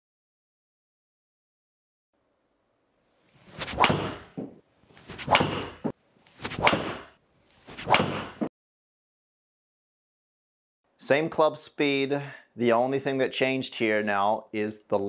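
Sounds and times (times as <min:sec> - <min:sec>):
golf club swishing: 0:03.0 - 0:08.5.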